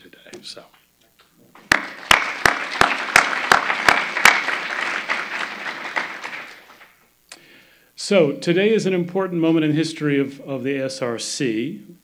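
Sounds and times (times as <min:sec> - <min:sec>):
audience applause: 0:01.7 - 0:07.0
close loud hand claps: 0:01.7 - 0:07.0.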